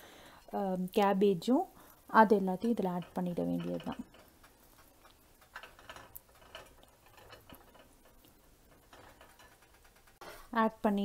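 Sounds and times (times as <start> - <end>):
gravy simmering with small pops: 1.8 - 10.5.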